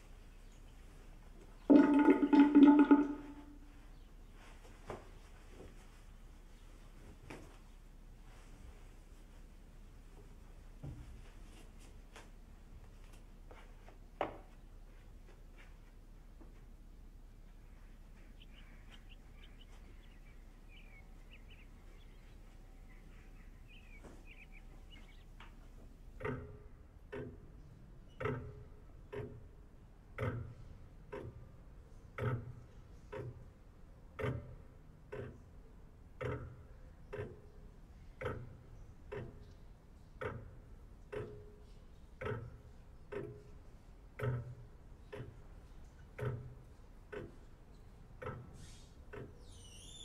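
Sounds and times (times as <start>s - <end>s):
pendulum clock ticking: 1.7s - 3.8s, 18.2s - 49.7s
faint high chirps: 49.5s - 50.0s.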